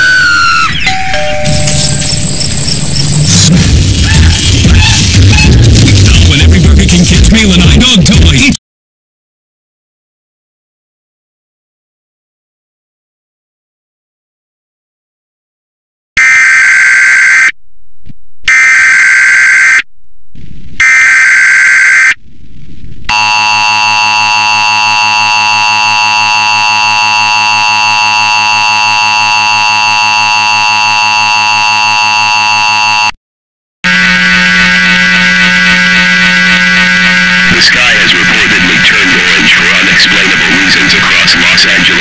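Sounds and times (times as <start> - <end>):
warbling data tones: 0.0 - 6.5, 23.1 - 33.1
harsh alert tone: 0.0 - 8.3, 18.5 - 19.8, 20.8 - 22.2, 23.1 - 33.2, 33.8 - 42.0
low buzzing tone: 23.1 - 33.2, 33.8 - 37.6.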